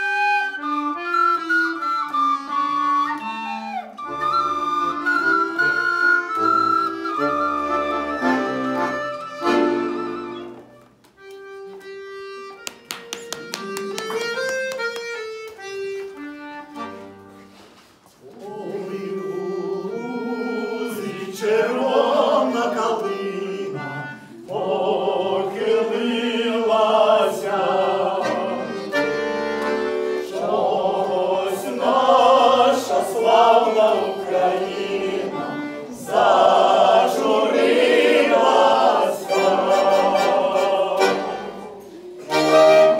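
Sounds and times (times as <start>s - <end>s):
button accordion playing: 0.0s - 17.6s, 18.6s - 42.9s
wooden folk flutes playing: 0.0s - 25.6s, 27.5s - 42.9s
man and woman singing: 18.3s - 28.8s.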